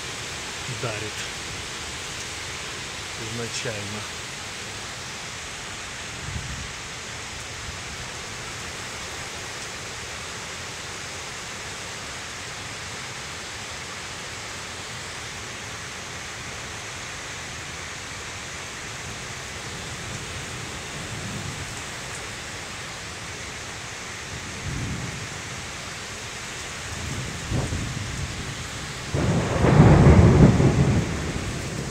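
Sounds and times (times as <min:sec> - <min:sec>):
heavy rain: 0:00.0 - 0:31.9
thunder rumbling: 0:27.0 - 0:31.9.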